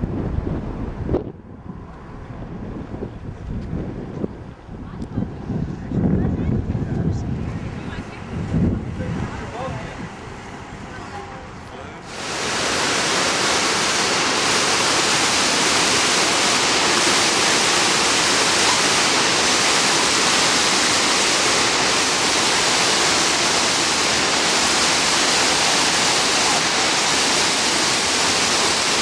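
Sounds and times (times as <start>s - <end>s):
waterfall rushing over rocks: 8.9s - 29.0s.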